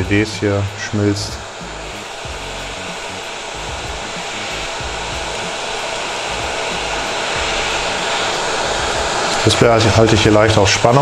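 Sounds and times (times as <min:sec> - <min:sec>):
hot-air gun blowing: 0:00.0 - 0:11.0.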